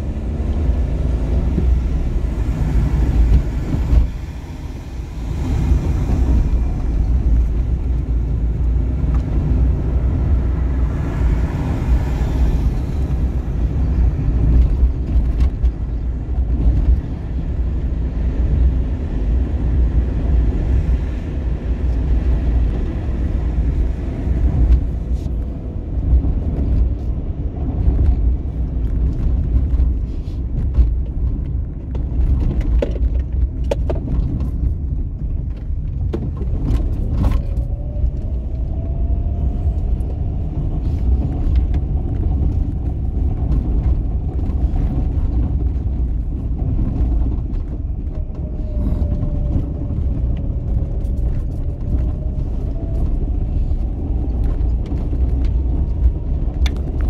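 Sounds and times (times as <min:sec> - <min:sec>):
car engine and tyre rumble: 0:00.0 - 0:57.0
road noise rush: 0:00.0 - 0:57.0.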